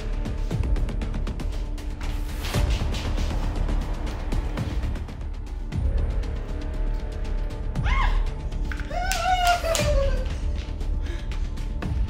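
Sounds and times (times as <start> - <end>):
background music with steady beat: 0.0 - 12.0.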